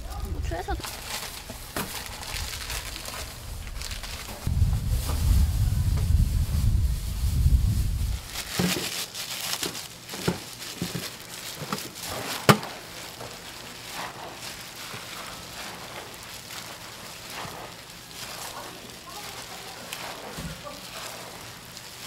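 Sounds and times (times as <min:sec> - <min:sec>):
low rumble: 0:00.0 - 0:08.4
noodles rustling in steel bowl: 0:00.0 - 0:22.0.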